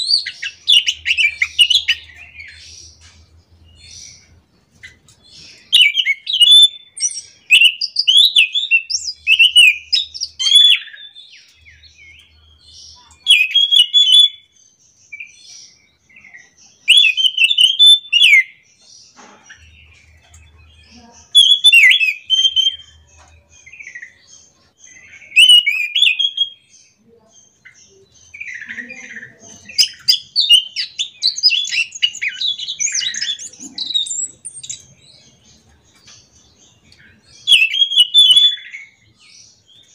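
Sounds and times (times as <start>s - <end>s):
thrush singing whistled phrases: 5.7s - 11.2s, 13.3s - 14.5s, 16.8s - 18.6s, 21.4s - 23.0s, 25.2s - 26.7s, 29.8s - 35.0s, 37.4s - 39.1s.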